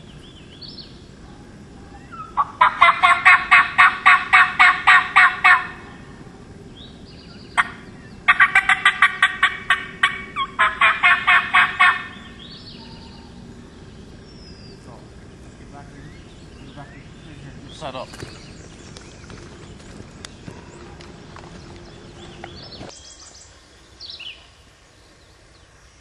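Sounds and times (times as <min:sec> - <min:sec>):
turkey call sharp notes: 0:01.9 - 0:06.2, 0:07.5 - 0:13.4.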